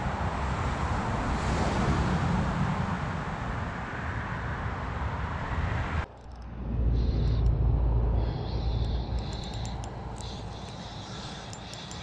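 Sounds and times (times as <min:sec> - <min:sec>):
outdoor background noise: 0:00.0 - 0:12.0
fishing reel whirring: 0:08.4 - 0:12.0.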